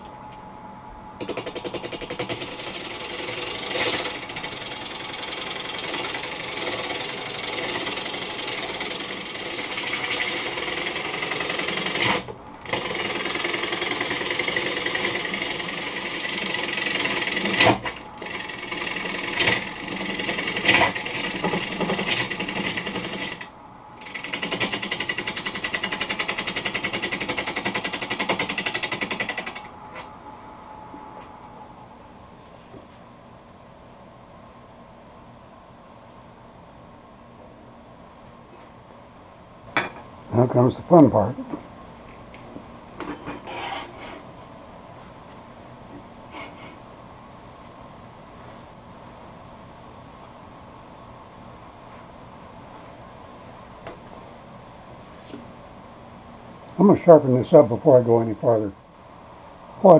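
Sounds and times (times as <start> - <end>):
lathe running: 1.2 - 29.7
gouge cutting wood on lathe: 2.0 - 29.6.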